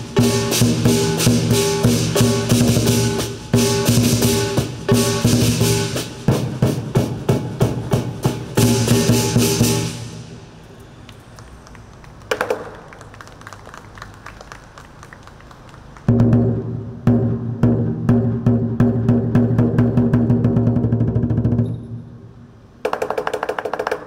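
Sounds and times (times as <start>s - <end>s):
big drum beats: 0.0s - 10.2s, 16.1s - 21.6s
cymbal crash: 0.0s - 10.5s.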